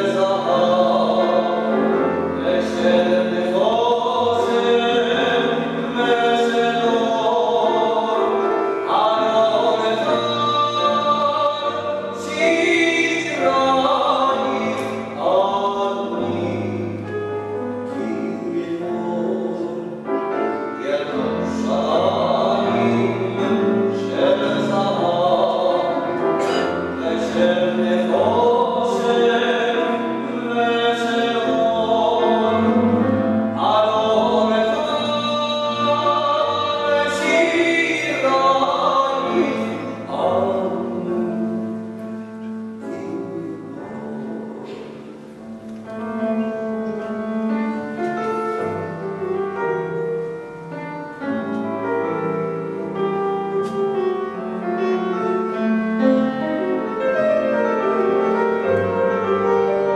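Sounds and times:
person singing in full voice: 0.0s - 45.0s
piano accompaniment: 0.0s - 59.9s.

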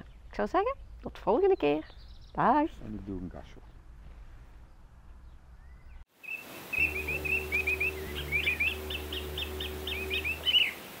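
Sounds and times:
bird chirping: 0.0s - 3.8s, 4.6s - 10.8s
low musical drone: 6.8s - 10.7s.

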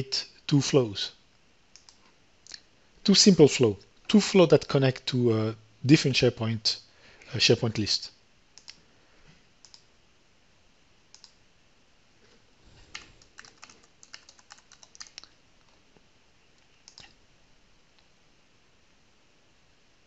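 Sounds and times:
faint keyboard typing: 1.7s - 2.7s, 9.6s - 9.9s, 11.1s - 11.4s, 12.2s - 16.0s, 16.6s - 17.2s.

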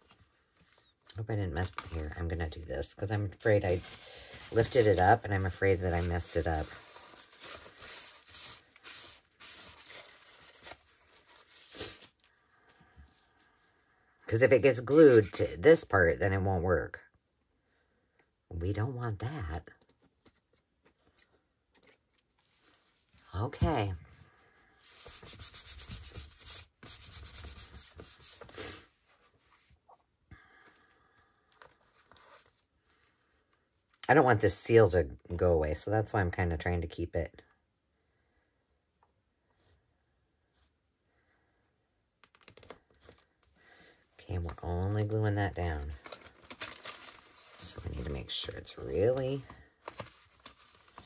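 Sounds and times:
paper rustling: 3.2s - 12.4s, 14.8s - 15.5s, 24.8s - 28.7s, 31.6s - 32.7s, 42.2s - 43.5s, 45.8s - 51.0s.

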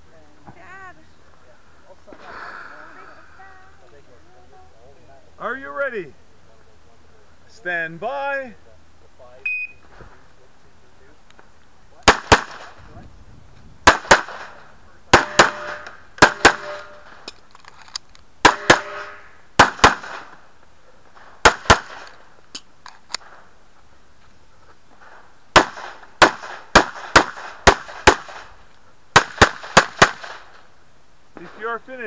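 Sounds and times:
pistol shots: 12.0s - 12.8s, 13.8s - 17.2s, 18.4s - 20.4s, 21.2s - 22.2s, 25.5s - 30.6s.

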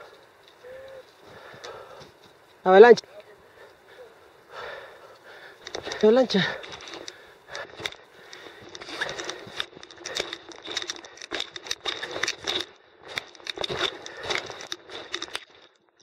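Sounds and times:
climbing gear rustling: 4.5s - 16.0s
footsteps crunching: 4.6s - 16.0s.

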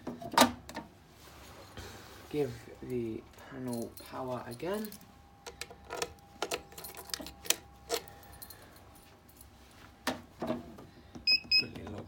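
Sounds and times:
keys jangling: 3.7s - 5.1s, 5.9s - 9.6s.

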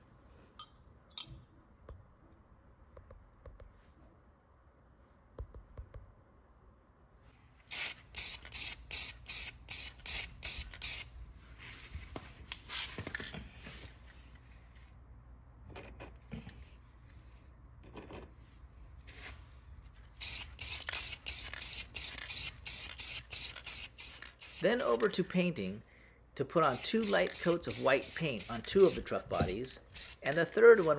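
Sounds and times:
spray paint can hissing: 7.6s - 11.1s, 20.1s - 25.2s, 26.6s - 30.9s.

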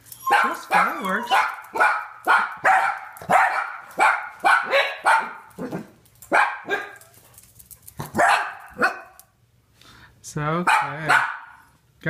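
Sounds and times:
dogs barking: 0.3s - 7.1s, 8.0s - 9.2s, 10.6s - 11.6s.

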